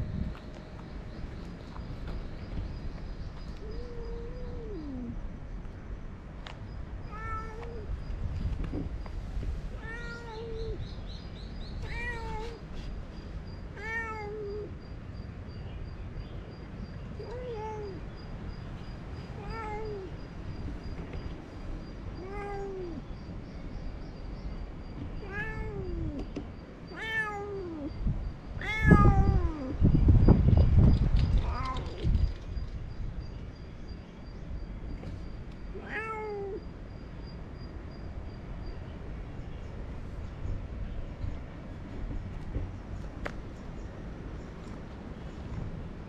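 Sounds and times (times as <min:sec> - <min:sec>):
cat meowing: 0:07.1 - 0:07.9, 0:09.8 - 0:10.8, 0:11.8 - 0:12.6, 0:13.8 - 0:14.7, 0:17.2 - 0:18.0, 0:19.4 - 0:20.2, 0:22.2 - 0:23.0, 0:25.2 - 0:26.2, 0:26.9 - 0:27.9, 0:28.6 - 0:29.8, 0:35.8 - 0:36.6.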